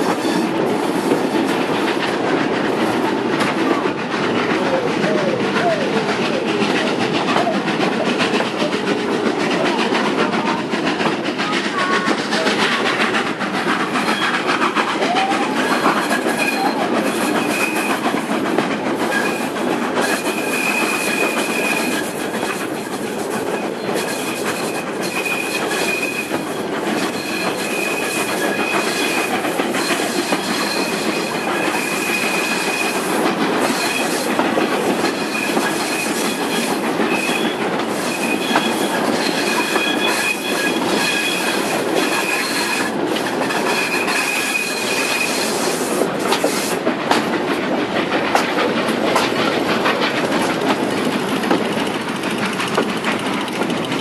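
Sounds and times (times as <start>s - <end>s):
train wheels rumbling over rails: 0.0s - 54.0s
high wheel squeal: 14.0s - 14.4s, 15.0s - 18.1s, 19.1s - 22.6s, 23.5s - 34.4s, 35.0s - 46.6s.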